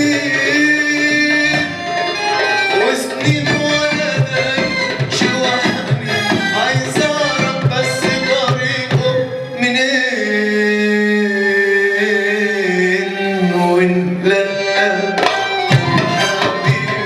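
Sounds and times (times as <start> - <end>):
man singing: 0.0 - 2.0, 2.7 - 17.0
hand drums beating: 0.0 - 9.3, 15.2 - 17.0
accordion: 0.0 - 17.0
violin: 0.0 - 17.0.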